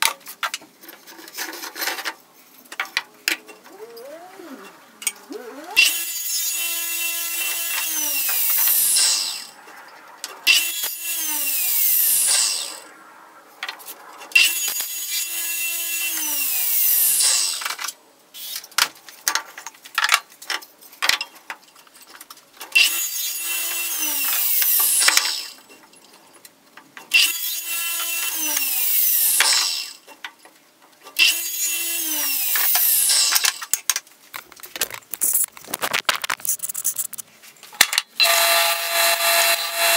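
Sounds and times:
radial arm saw cutting wood: 0:03.2 - 0:09.6, 0:10.4 - 0:12.9, 0:13.9 - 0:17.8, 0:22.8 - 0:25.6, 0:27.1 - 0:30.0, 0:31.2 - 0:33.6, 0:38.2 - 0:39.9.

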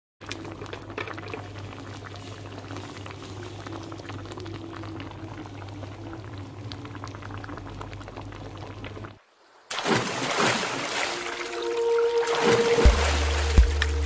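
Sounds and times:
curry bubbling: 0:00.2 - 0:09.2
low hum: 0:10.7 - 0:14.0.

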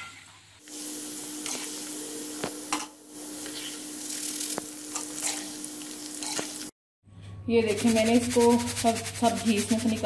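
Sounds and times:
lentils deep-frying sizzling: 0:00.5 - 0:06.8.

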